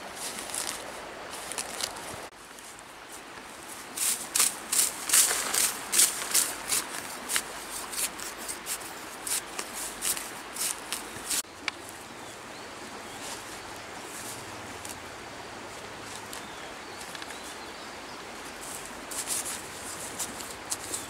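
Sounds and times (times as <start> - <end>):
scraping soil: 0.0 - 2.7, 3.8 - 11.5
hands rustling leaves: 0.0 - 17.6, 18.2 - 21.0
outdoor background hiss: 0.0 - 21.0.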